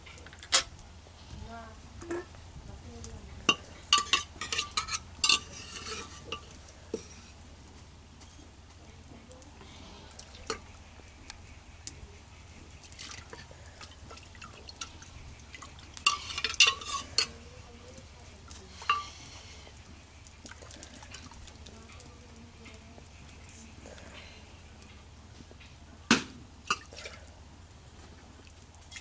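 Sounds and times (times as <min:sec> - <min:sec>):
ladle stirring lentils in pan: 0:03.0 - 0:25.8
ladle scraping metal pot: 0:03.5 - 0:07.4, 0:12.8 - 0:17.5, 0:18.5 - 0:19.5.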